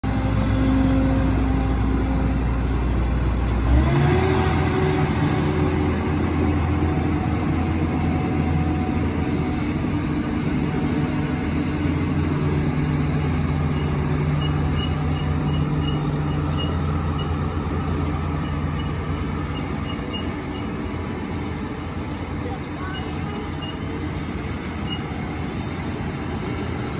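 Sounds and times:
diesel engines running: 0.0s - 26.9s.

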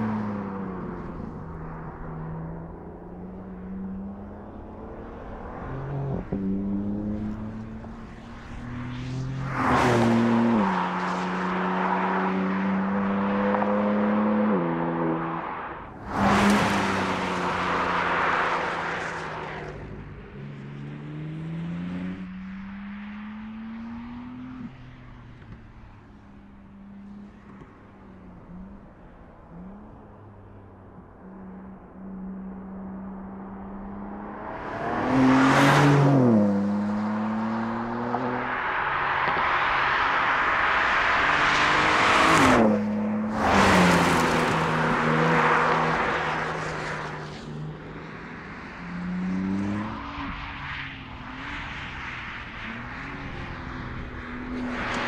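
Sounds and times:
car engine accelerating: 32.2s - 48.0s
car driving past fast: 33.2s - 55.0s.

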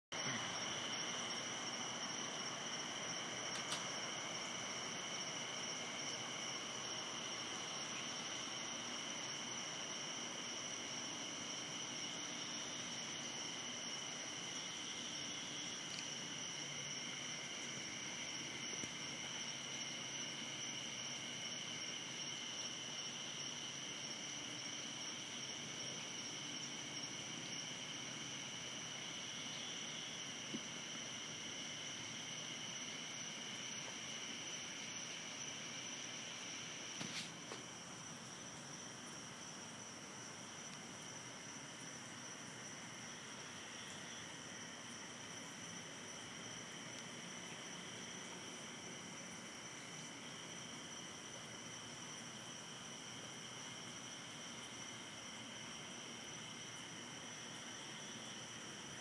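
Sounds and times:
night insects trilling: 0.1s - 59.0s
faint click: 3.5s - 3.9s.

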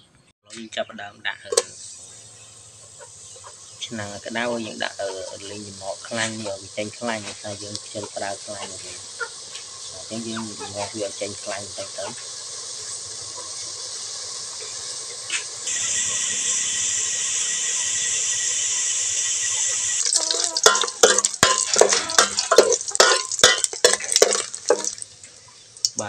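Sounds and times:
meat sizzling in hot oil: 1.5s - 26.0s
metal ladle scraping a pot: 19.9s - 25.0s.

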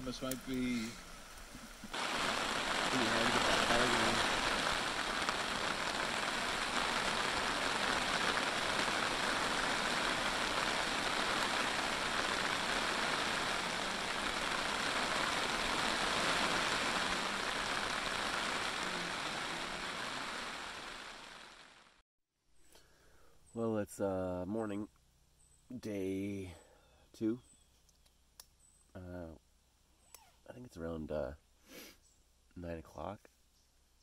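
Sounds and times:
steady rain falling: 0.0s - 22.0s.

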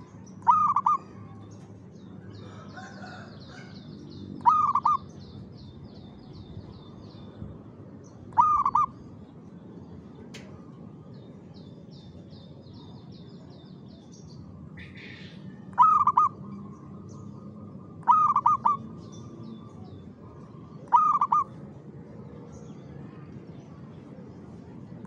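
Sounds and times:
dove cooing: 0.4s - 1.2s, 4.4s - 5.0s, 8.3s - 9.0s, 15.7s - 16.4s, 18.0s - 18.8s, 20.8s - 21.5s.

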